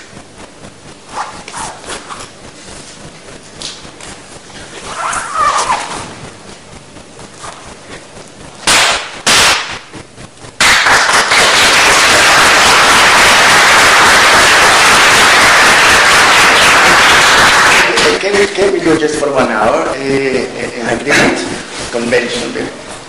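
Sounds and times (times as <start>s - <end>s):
audience applauding: 10.6s - 18.3s.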